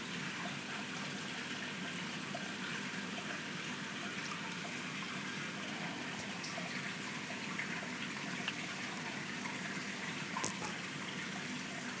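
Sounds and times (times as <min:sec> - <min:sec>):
water running in a tank: 0:00.0 - 0:12.0
faint ticks or small splashes: 0:10.4 - 0:10.8.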